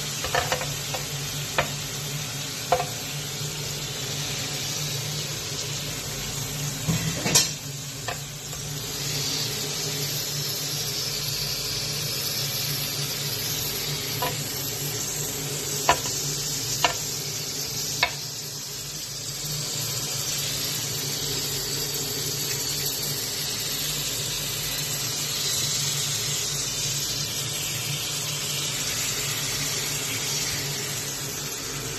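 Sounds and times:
meat sizzling on grill: 0.0 - 31.9.

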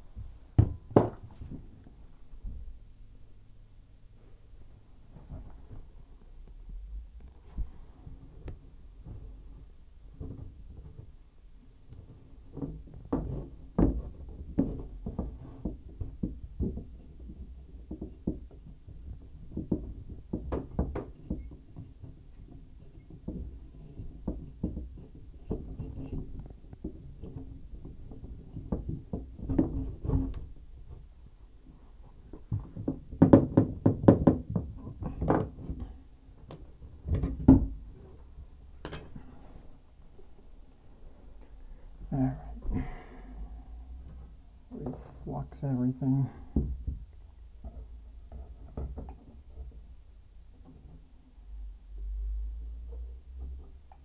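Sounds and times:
knocks and thumps on pipes: 0.2 - 1.5, 12.5 - 31.1, 32.3 - 37.8, 46.5 - 49.8.

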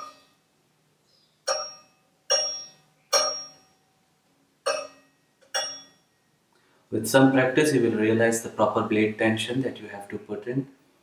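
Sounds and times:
sharp metallic pings: 0.0 - 0.4, 1.4 - 3.9, 4.6 - 6.4.

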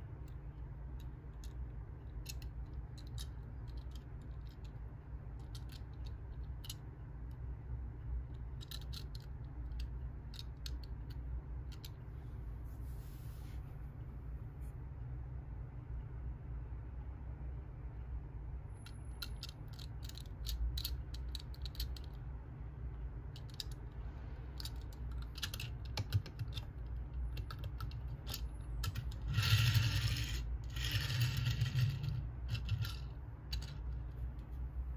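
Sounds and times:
toy car clicks and taps: 18.9 - 22.2
toy car rolling on wooden table: 28.2 - 33.8.

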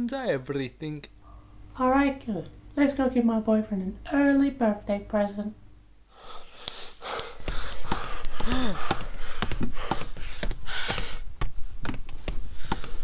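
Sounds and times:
man breathing heavily and gasping: 6.1 - 11.3.

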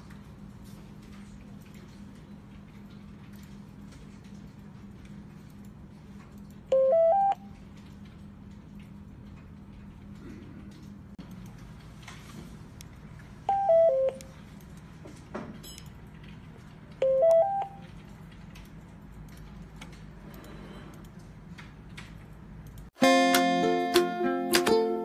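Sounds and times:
ukulele-like music: 23.0 - 25.0.

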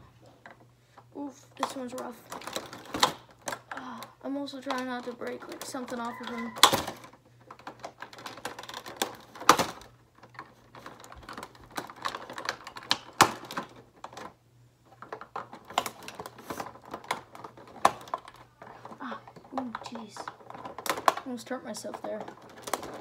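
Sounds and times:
plastic packaging clicking and snapping: 1.6 - 23.0.

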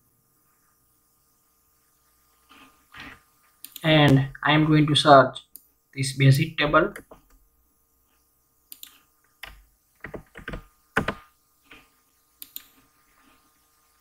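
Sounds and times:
keyboard keystrokes clacking: 8.8 - 11.2.

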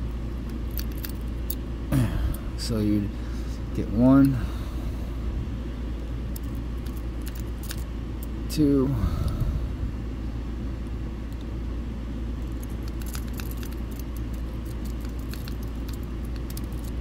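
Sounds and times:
lock pick clicks and scrapes: 0.7 - 1.6, 12.5 - 17.0.

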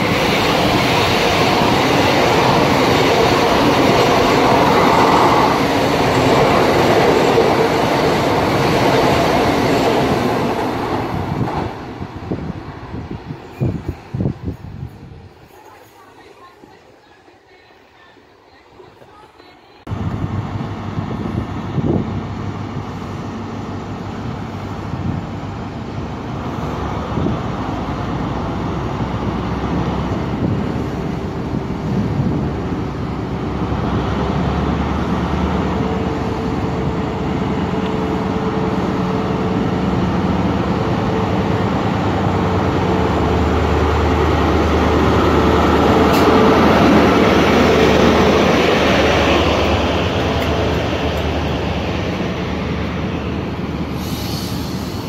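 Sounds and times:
train wheels rushing: 0.0 - 16.8, 21.2 - 55.0
diesel train engine running: 19.9 - 55.0.

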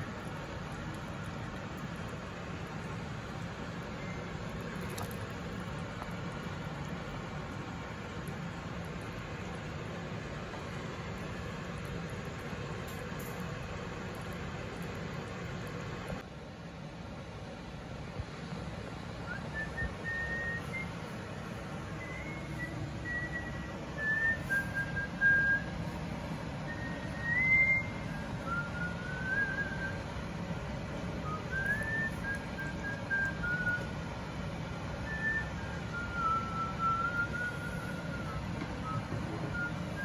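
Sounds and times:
whistled melody: 19.2 - 21.2, 21.9 - 25.8, 26.6 - 30.1, 31.2 - 34.0, 35.0 - 40.0.

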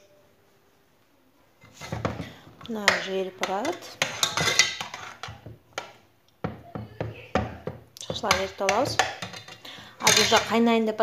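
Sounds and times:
person speaking: 2.0 - 4.2, 6.5 - 9.2
metal spoon clinking in saucepan: 2.8 - 5.9, 8.1 - 10.6.

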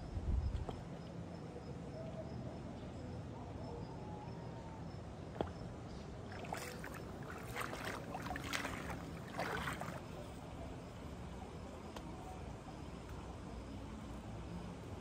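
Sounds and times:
footsteps splashing in water: 6.3 - 10.0.

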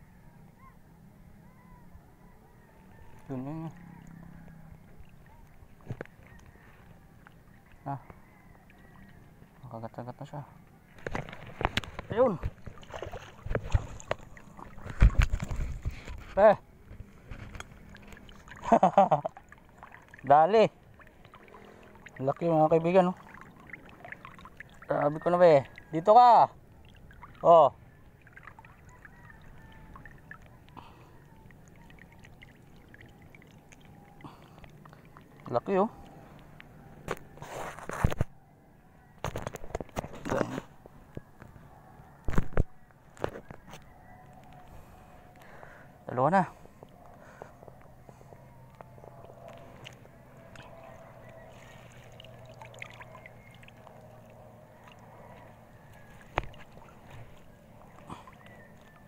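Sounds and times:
small splashes: 10.9 - 38.0, 46.9 - 59.0
water dripping and trickling: 17.4 - 37.3, 46.8 - 59.0
faint low hum: 40.7 - 59.0.

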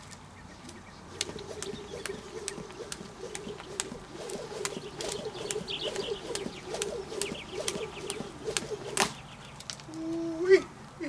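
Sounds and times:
birds cooing and chirping: 0.4 - 10.3
jump rope ticking on dirt: 1.1 - 10.0.

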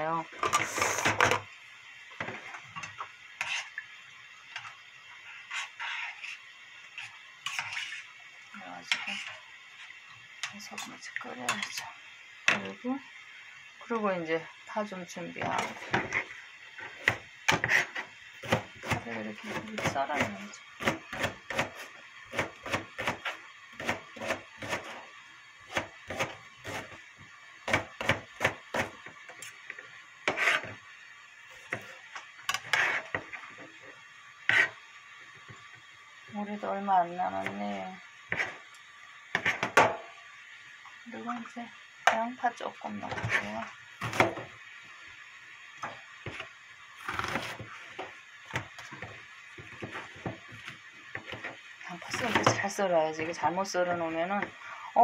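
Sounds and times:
knife chopping on cutting board: 18.4 - 24.9.

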